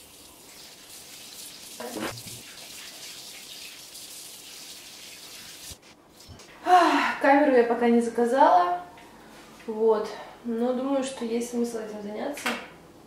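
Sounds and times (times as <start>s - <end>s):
tap water running into sink: 0.0s - 5.8s.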